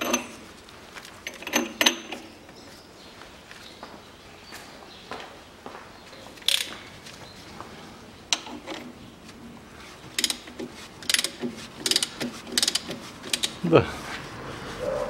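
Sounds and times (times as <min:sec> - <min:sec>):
ratchet wrench clicking: 0:10.2 - 0:13.6.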